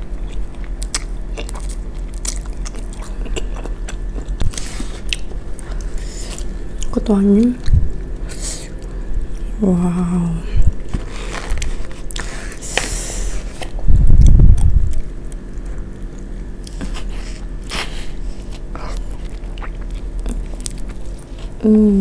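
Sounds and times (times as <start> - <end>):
biting and chewing: 0.0 - 7.0, 13.4 - 21.6.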